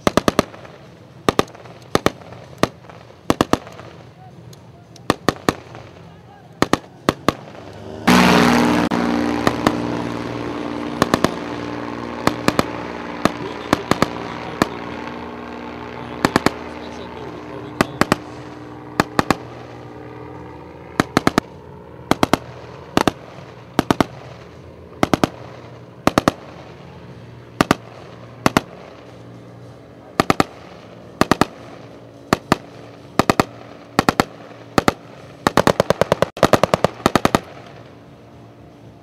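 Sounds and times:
automatic rifle fire: 0.0s - 0.7s, 1.3s - 3.9s, 6.6s - 8.4s, 11.0s - 11.6s, 12.2s - 15.0s, 16.0s - 17.0s, 17.6s - 19.6s, 20.9s - 21.5s, 22.1s - 24.3s, 25.0s - 26.6s, 27.6s - 28.9s, 30.2s - 30.6s, 31.2s - 37.6s
outboard motor running: 7.8s - 22.0s.

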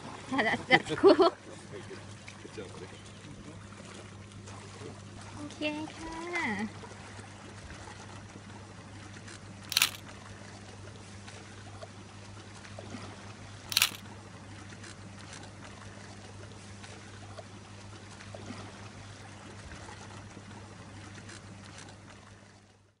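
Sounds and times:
camera shutter clicks: 9.7s - 10.0s, 13.7s - 14.0s.

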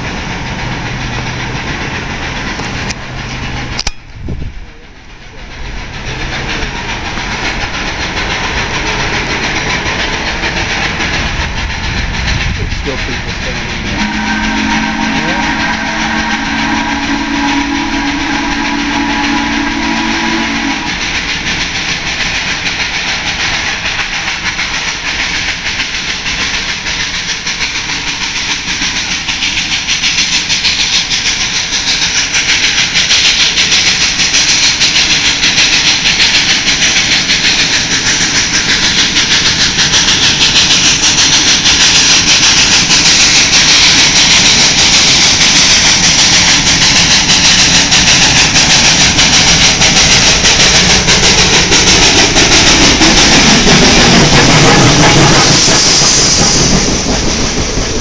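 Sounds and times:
steam engine working: 0.0s - 58.0s
steam locomotive whistle: 13.7s - 21.6s, 38.9s - 57.0s.

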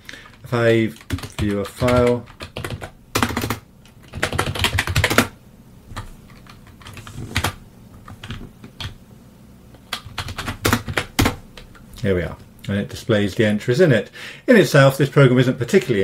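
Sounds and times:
keyboard typing: 0.2s - 5.3s, 5.9s - 9.0s, 9.8s - 11.7s.

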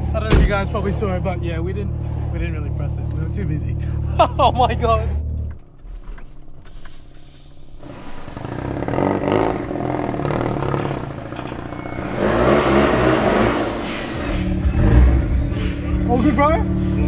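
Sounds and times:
rotary car engine under throttle: 7.8s - 17.0s.

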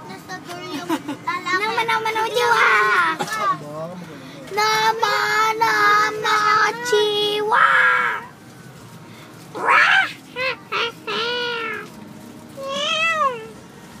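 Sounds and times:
girl's high-pitched vocal calls: 9.5s - 11.9s, 12.6s - 13.6s.

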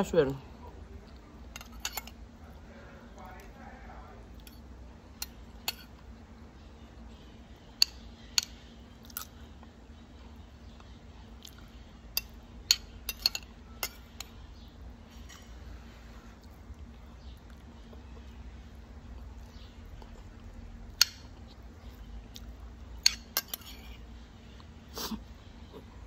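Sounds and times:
soft chewing: 0.4s - 26.0s
metal spoon clinking on glass plate: 12.2s - 14.3s, 23.0s - 23.9s.

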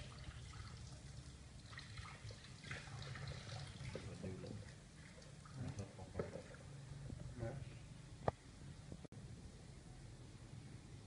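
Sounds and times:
small splashes: 0.0s - 6.7s
water trickling and dripping: 0.0s - 6.8s.

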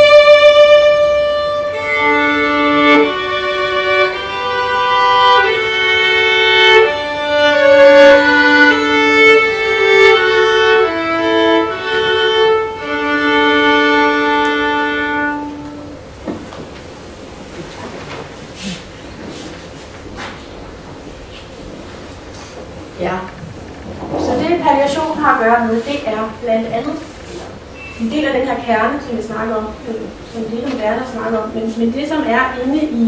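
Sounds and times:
solo violin melody: 0.0s - 16.1s
soft knocks: 16.2s - 16.8s.

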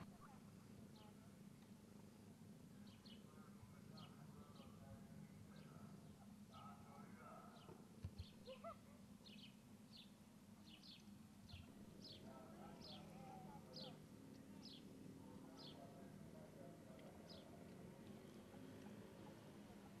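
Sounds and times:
small bird chirping: 9.2s - 14.9s.

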